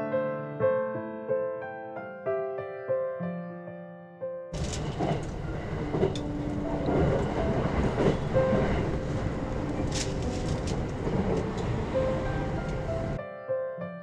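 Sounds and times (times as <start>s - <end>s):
train running past on rails: 4.6s - 13.2s
sharp clicks of wheels: 9.9s - 11.7s.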